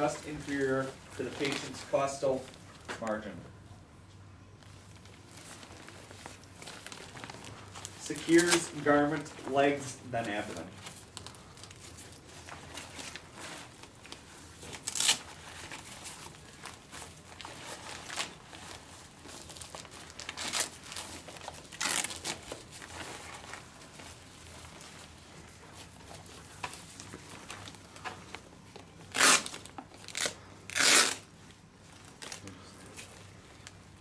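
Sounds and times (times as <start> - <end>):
fabric rustling: 4.6 - 32.3
velcro straps pulled open: 14.1 - 16.1, 20.2 - 22.7, 29.1 - 31.3.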